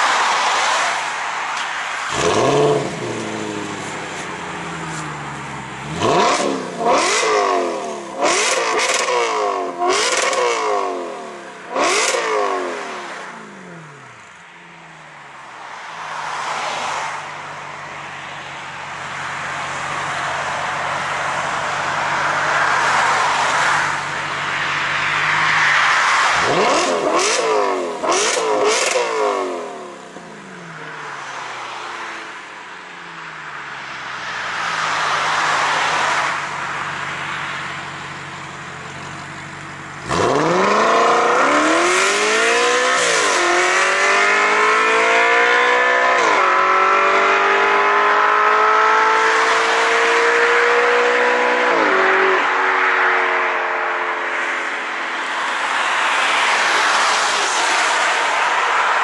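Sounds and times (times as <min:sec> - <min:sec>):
car engine revving: 0:00.0 - 0:32.0, 0:33.2 - 0:53.0
car accelerating through gears: 0:02.1 - 0:05.0, 0:05.7 - 0:14.1, 0:25.0 - 0:30.0, 0:40.0 - 0:52.4.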